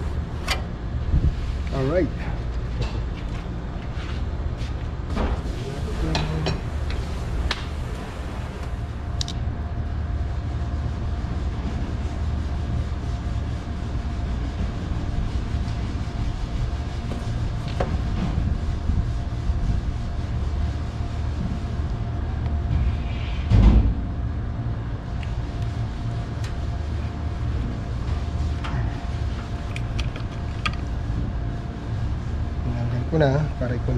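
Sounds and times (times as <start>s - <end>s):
faint constant whine: 0.0s - 33.9s
low machine hum: 0.0s - 33.9s.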